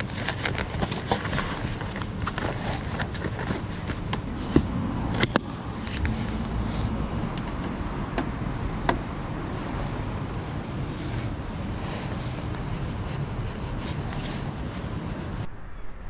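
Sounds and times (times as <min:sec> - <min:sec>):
steady low rumble: 0:04.3 - 0:16.0.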